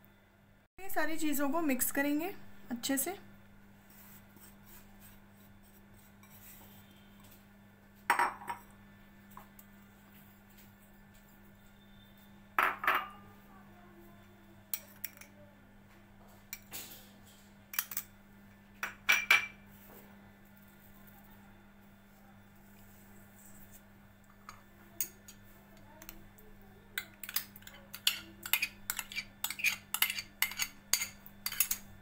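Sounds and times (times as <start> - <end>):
faint steady hum: 0.0 - 32.0
glass bowls clinking on steel bowl: 8.1 - 8.7, 12.6 - 13.2.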